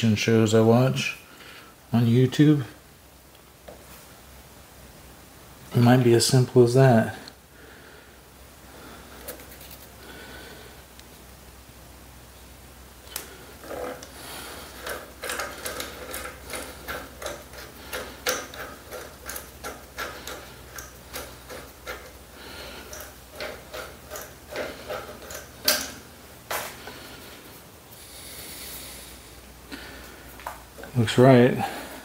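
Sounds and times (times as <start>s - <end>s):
rivet nut tool clicking: 14.8s - 22.2s, 22.8s - 26.0s.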